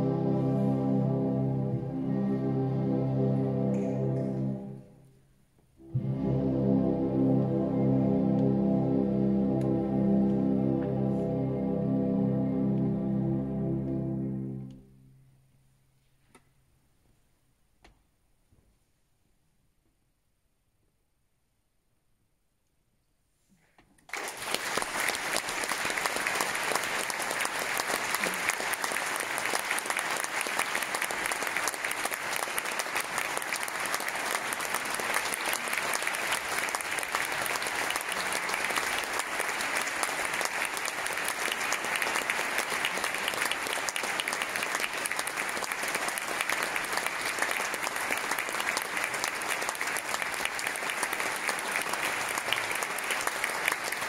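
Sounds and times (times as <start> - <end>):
audience applauding: 24.1 - 54.0.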